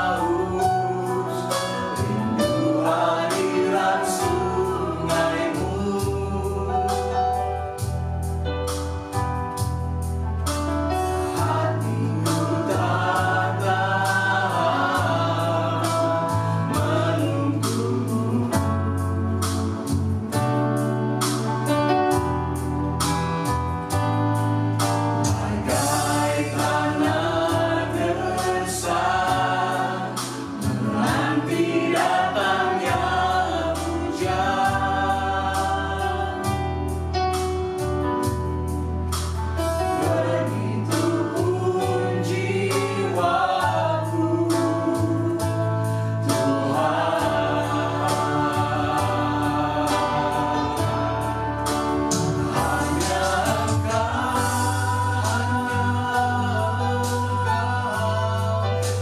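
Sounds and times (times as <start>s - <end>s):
group singing in harmony: 0.0s - 8.4s, 10.9s - 23.5s, 24.6s - 38.3s, 39.6s - 59.0s
electric keyboard: 0.0s - 59.0s.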